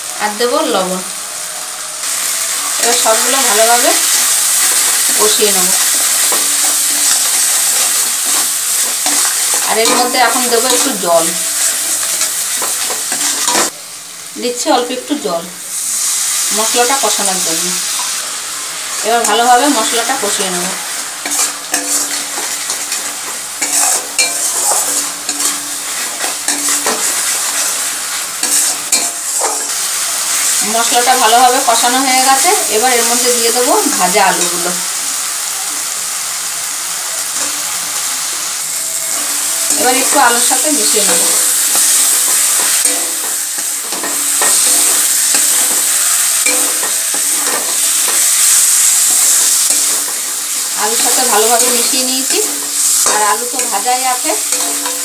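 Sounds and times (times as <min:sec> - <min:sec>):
paste sizzling in oil: 0:00.0 - 0:55.0
metal spatula scraping wok: 0:02.7 - 0:13.7, 0:19.0 - 0:32.8, 0:38.7 - 0:55.0.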